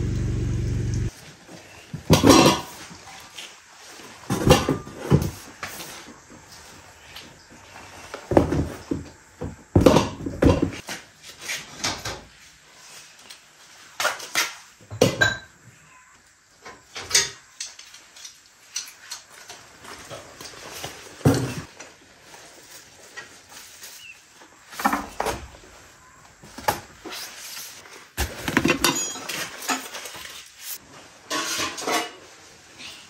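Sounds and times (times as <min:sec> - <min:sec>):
dishes and utensils clattering: 0:02.0 - 0:03.0, 0:04.2 - 0:05.4, 0:14.9 - 0:15.6, 0:28.4 - 0:30.5, 0:31.2 - 0:32.5.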